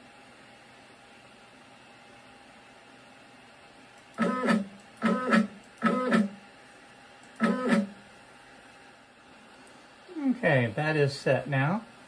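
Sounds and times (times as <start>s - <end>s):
stepper motor whine: 4.2s - 6.4s, 7.4s - 8.0s.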